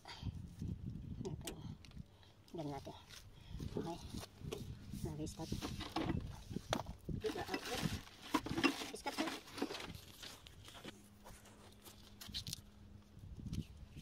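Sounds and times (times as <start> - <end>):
hands handling cables and tape: 5.4 - 13.7.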